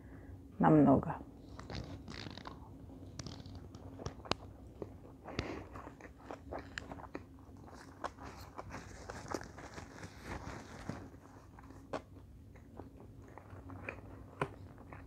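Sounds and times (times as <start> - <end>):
close chewing with mouth clicks: 1.4 - 15.0
paper napkin rustling: 8.0 - 11.6.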